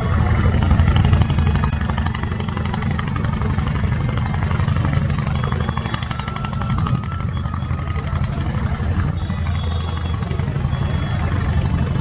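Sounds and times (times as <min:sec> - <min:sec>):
diesel engine rumbling: 0:00.0 - 0:12.0.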